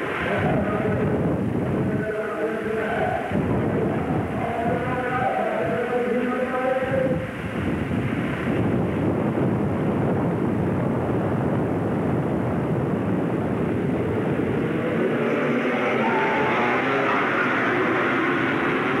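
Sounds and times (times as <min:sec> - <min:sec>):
atv engines droning: 0:12.6 - 0:19.0.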